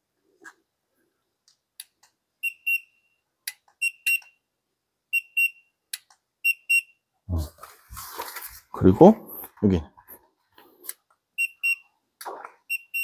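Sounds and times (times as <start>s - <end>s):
thermometer double beeps: 5.1s - 5.7s, 6.4s - 7.0s
handling rustle: 7.4s - 8.9s.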